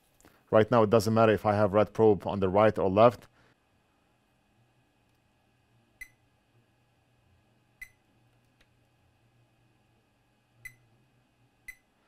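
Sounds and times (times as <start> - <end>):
multimeter beeps: 6.0 - 6.3, 7.8 - 8.1, 10.6 - 10.9, 11.6 - 11.9.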